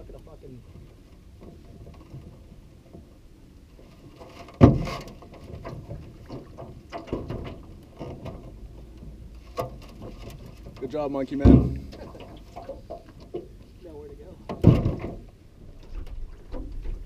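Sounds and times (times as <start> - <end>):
boat hull bumping on rocks: 4.0 - 13.6, 14.4 - 17.0.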